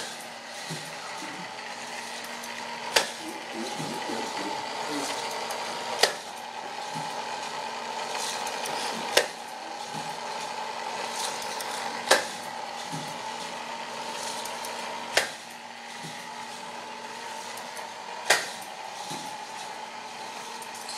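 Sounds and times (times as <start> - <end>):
small electric motor whine: 0.0 - 20.9
sharp click: 18.3 - 18.6.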